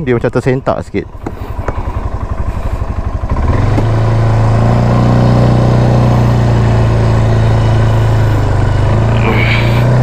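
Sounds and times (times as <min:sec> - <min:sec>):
quad bike engine revving: 0:01.1 - 0:10.0.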